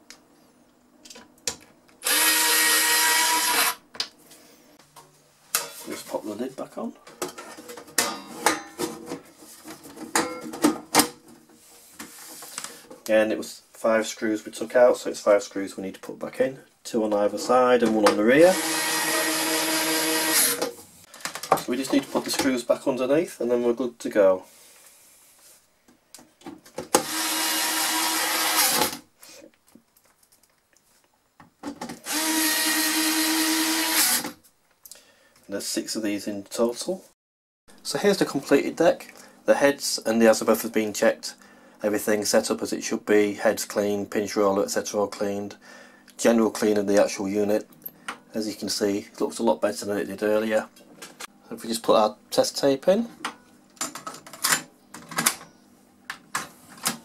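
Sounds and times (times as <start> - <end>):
electric screwdriver driving screws: 2.0 - 3.8, 18.5 - 20.7, 27.0 - 29.0, 32.0 - 34.4.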